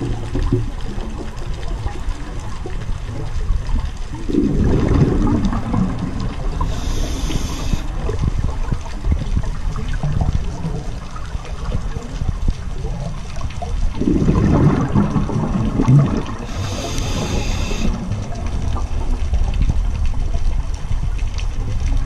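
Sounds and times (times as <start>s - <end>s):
exhaled bubbles gurgling: 0.0s - 22.0s
low underwater rumble: 0.0s - 22.0s
regulator breathing hiss: 6.6s - 7.9s, 16.5s - 18.0s.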